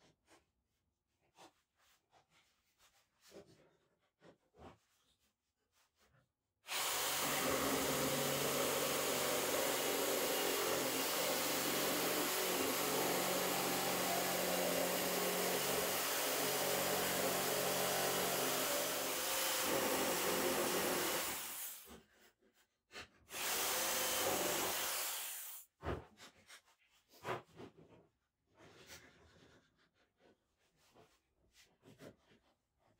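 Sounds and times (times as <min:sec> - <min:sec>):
jigsaw cutting wood: 0:06.7 - 0:21.9, 0:23.3 - 0:25.6.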